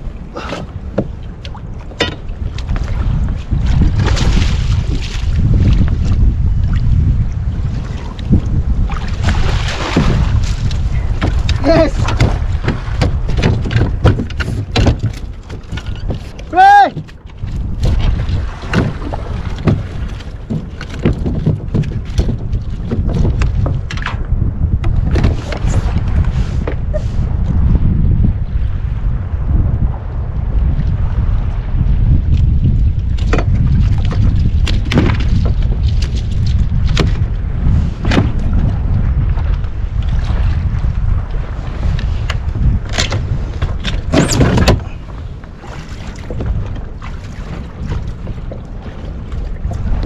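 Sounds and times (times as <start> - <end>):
water slapping against hull: 0.0 - 50.0
wind rumbling on microphone: 0.0 - 50.0
sharp knocks and slaps: 11.2 - 15.8.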